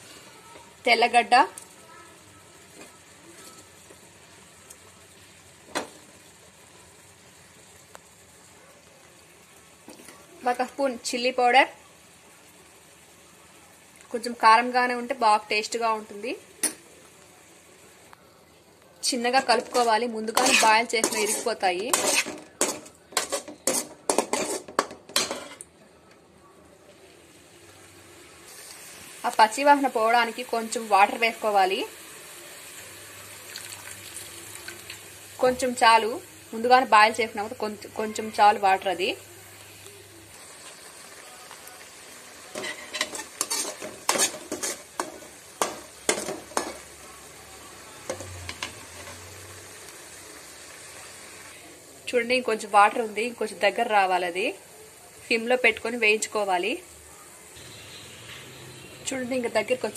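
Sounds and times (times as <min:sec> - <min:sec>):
gravy sizzling: 0:00.0 - 0:59.9
metal spoon scraping metal pan: 0:19.4 - 0:25.7, 0:42.5 - 0:46.8
faint steady hiss: 0:25.6 - 0:59.9.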